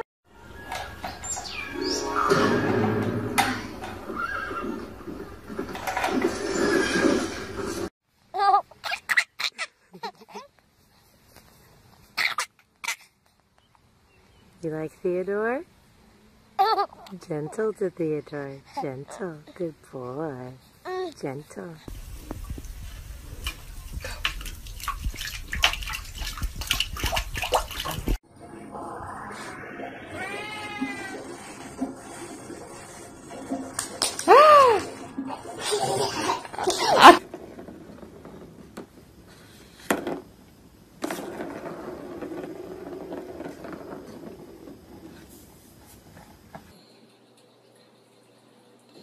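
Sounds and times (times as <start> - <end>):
ball rolling in plastic track: 2.6 - 7.9, 36.7 - 45.8
water splashing in a bathtub: 23.4 - 28.2.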